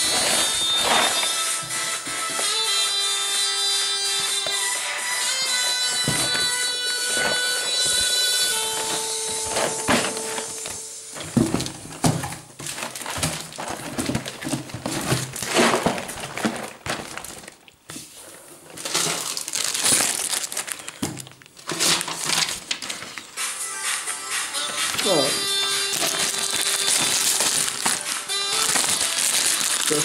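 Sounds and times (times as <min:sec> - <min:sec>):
paper packing material crinkling: 0:00.0 - 0:23.6, 0:24.3 - 0:30.0
cardboard boxes being handled: 0:05.5 - 0:23.1, 0:24.7 - 0:29.9.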